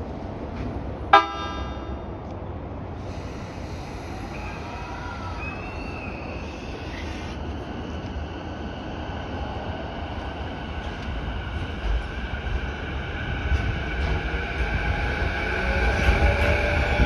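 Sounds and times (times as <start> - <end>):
low rumble of train: 0.0 - 17.0
electric train pulling away: 3.0 - 17.0.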